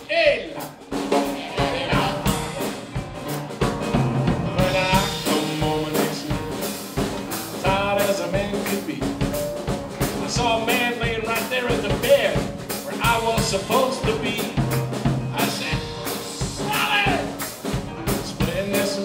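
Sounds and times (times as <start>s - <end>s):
person singing: 0.0s - 2.9s, 4.5s - 6.8s, 7.5s - 9.2s, 10.0s - 14.7s, 15.3s - 17.4s, 18.1s - 19.0s
drum beat: 0.0s - 19.0s
piano: 0.0s - 19.0s.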